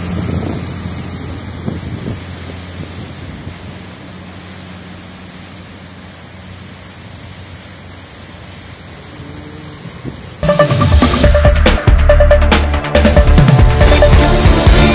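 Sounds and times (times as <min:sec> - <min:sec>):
waterfall rushing: 0:00.0 - 0:14.9.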